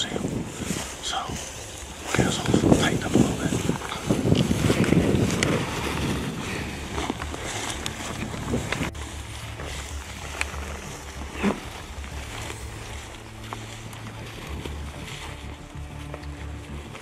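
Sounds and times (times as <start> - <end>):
dry grass brushing against legs: 0.0 - 17.0
footsteps through tall grass: 0.0 - 17.0
grass stems crackling: 0.0 - 17.0
wind buffeting microphone: 0.0 - 17.0.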